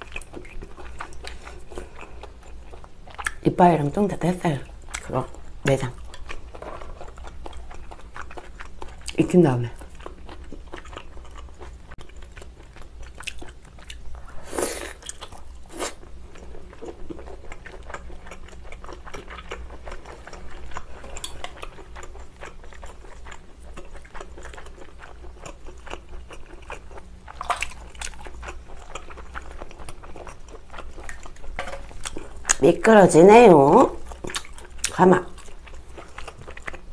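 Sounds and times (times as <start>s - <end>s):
wet chewing clicks: 16.4s - 32.8s, 34.0s - 36.9s.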